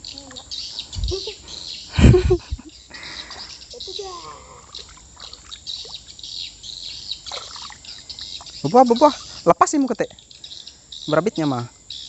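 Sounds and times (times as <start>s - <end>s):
birds chirping: 0.0s - 12.0s
insects trilling: 0.0s - 12.0s
fish splashing in water: 4.7s - 6.1s, 7.2s - 8.6s.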